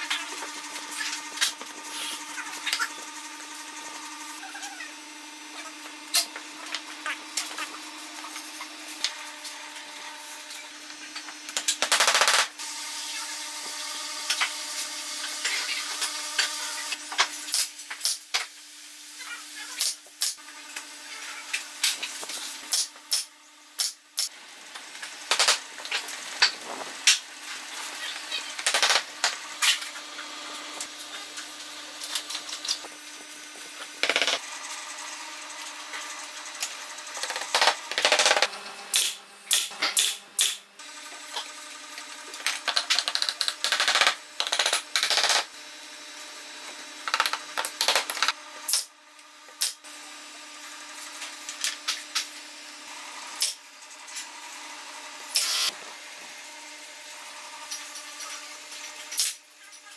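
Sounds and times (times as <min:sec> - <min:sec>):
nail gun firing into wood: 0:11.8 - 0:12.5.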